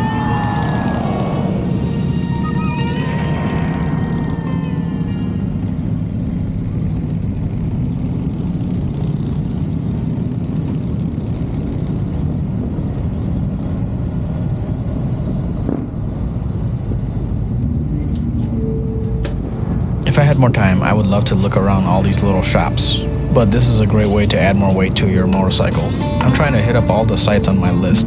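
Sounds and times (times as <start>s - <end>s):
motorcycle engine running: 0.0s - 18.7s.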